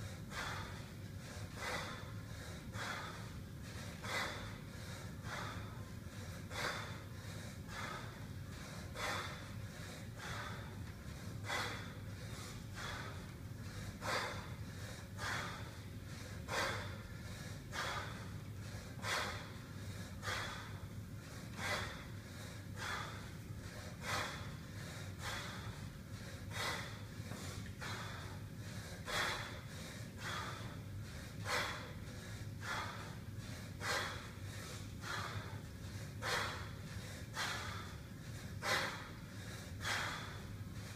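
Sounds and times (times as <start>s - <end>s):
man breathing hard: 0.0s - 40.9s
steady low hum: 0.0s - 40.9s
man exhaling forcefully: 33.8s - 35.6s, 36.2s - 40.6s.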